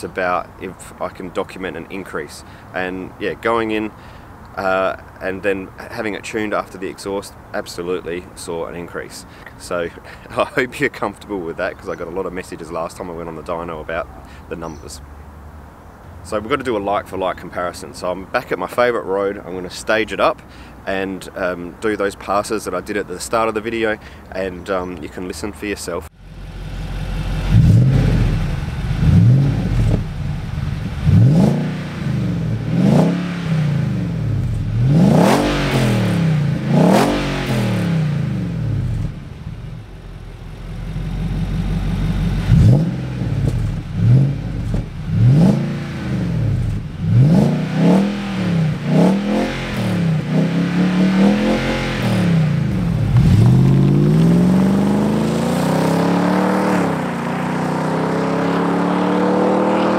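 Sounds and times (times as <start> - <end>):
car engine revving: 26.1 - 59.9
car accelerating away: 26.2 - 59.9.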